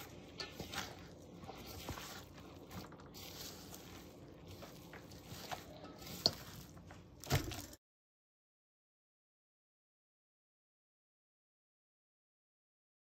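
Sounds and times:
soft squelching of battered vegetables: 0.0s - 7.8s.

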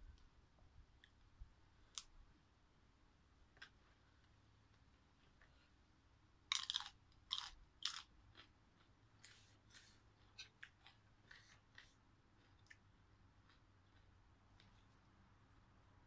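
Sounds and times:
crunchy vegetable chewing: 6.4s - 15.1s.

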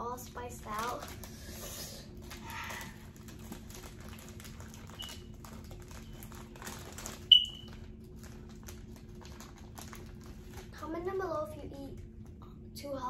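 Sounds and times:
foil snack bag crinkling: 0.3s - 10.8s
crunchy snacks being chewed: 0.7s - 10.8s.

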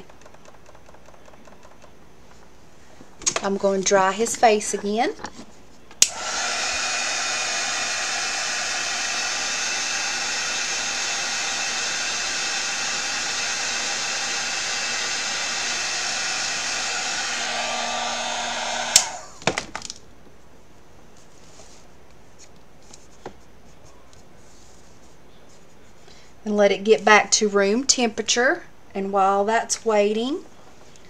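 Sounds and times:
hair dryer blowing: 6.0s - 19.4s.

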